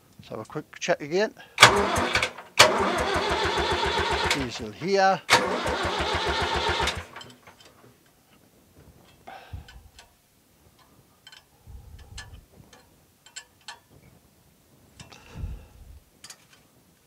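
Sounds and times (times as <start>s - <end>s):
diesel engine cranking: 1.6s - 7.7s
light clicks and ticks: 10.8s - 13.8s.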